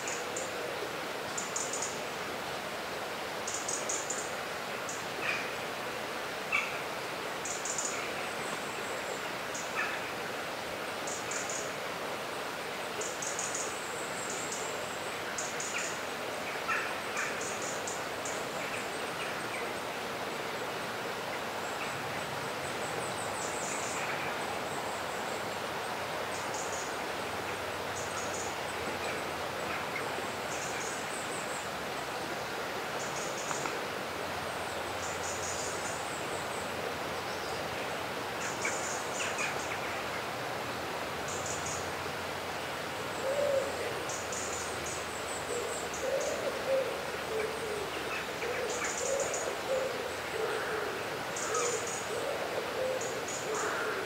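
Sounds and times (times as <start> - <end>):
low bird calls: 43.1 - 54.0.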